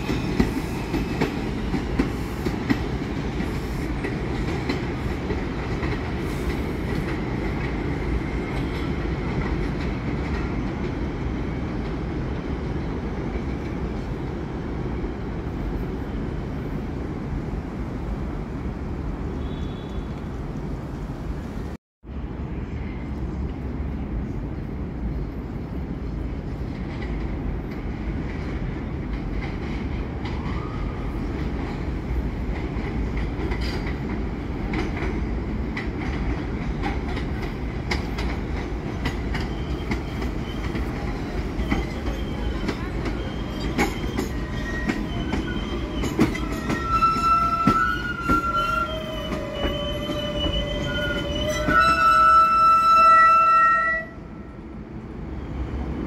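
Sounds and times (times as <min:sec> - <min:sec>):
high squealing of train wheels: 0:00.0 - 0:09.6, 0:29.6 - 0:35.5, 0:36.5 - 0:56.0
subway train rumble: 0:00.0 - 0:56.0.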